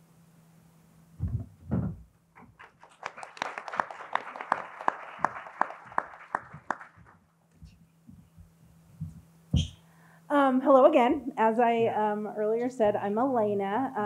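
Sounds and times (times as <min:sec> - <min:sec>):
low thumps: 0:01.2 - 0:02.1, 0:07.6 - 0:09.8
audience applauding: 0:02.4 - 0:07.2.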